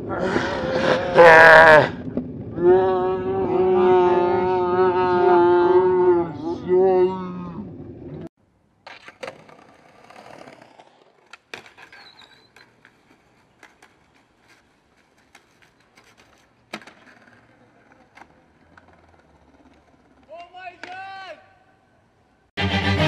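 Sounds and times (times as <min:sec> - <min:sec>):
skateboard wheels rolling on concrete: 0:00.0 - 0:23.0
skateboard sliding on stone ledge: 0:08.8 - 0:20.4
skateboard clacks: 0:08.8 - 0:21.1.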